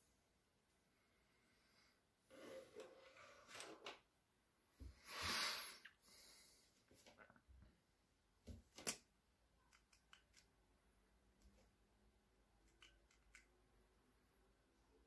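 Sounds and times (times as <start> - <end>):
pencil parts clicking: 9.6 - 10.6, 12.6 - 13.6.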